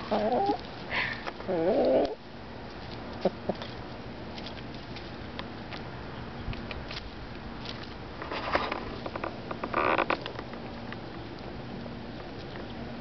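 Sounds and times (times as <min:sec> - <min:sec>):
hen warbling calls: 0:00.0 - 0:00.6, 0:01.4 - 0:02.2.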